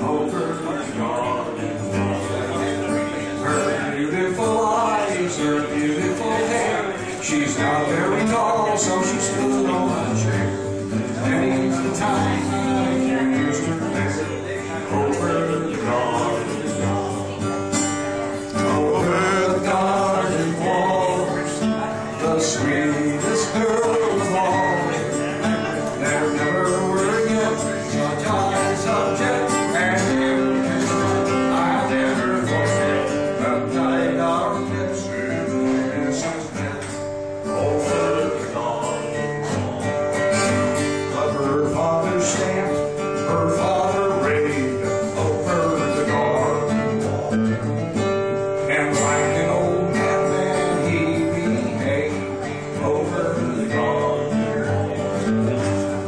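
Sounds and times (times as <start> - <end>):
acoustic guitar strumming: 0.0 - 56.0.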